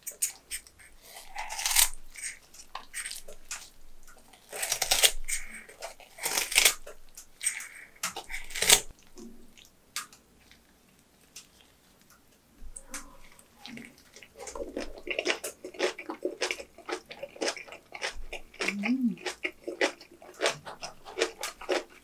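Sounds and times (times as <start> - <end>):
scissors snipping cabbage: 0.1 - 3.6, 4.5 - 8.9
wet crunching and tearing: 1.1 - 3.7, 4.3 - 9.0, 14.0 - 22.0.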